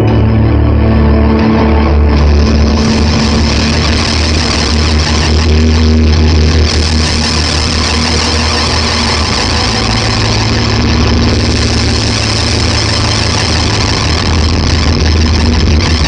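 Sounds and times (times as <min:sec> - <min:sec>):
fuzzed electric guitar: 0:00.0 - 0:16.0
steady low drone: 0:00.0 - 0:16.0.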